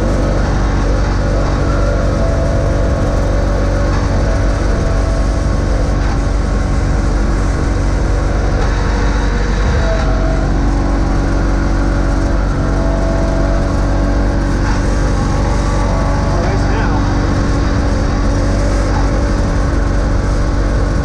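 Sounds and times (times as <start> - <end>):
garden tractor engine running: 0.0 - 21.0.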